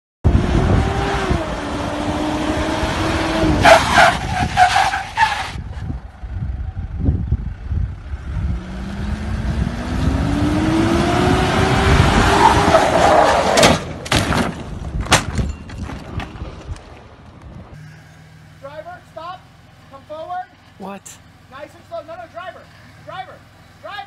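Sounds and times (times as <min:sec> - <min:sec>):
suv engine revving: 0:00.3 - 0:05.5, 0:07.8 - 0:13.6
tyre squeal: 0:03.6 - 0:05.8.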